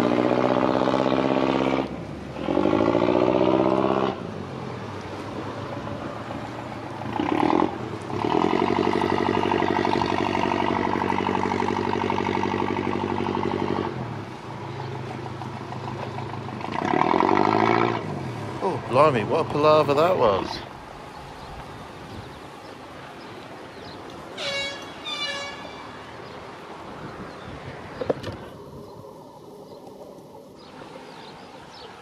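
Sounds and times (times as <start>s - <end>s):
boat engine revving: 0.0s - 4.5s, 5.5s - 20.5s.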